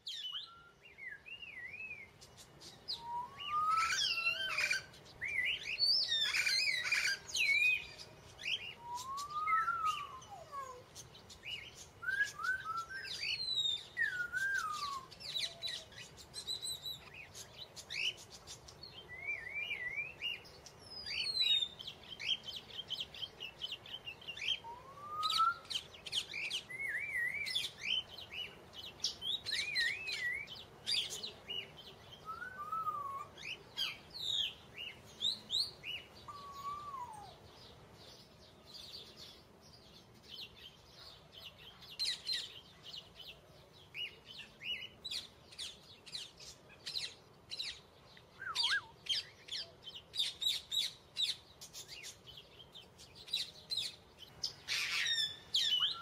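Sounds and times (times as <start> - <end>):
songbirds chirping and singing: 0.0 - 56.0.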